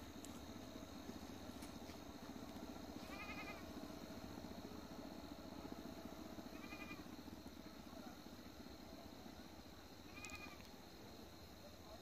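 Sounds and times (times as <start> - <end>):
low outdoor background noise: 0.0 - 12.0
goat bleating faintly: 3.0 - 3.6.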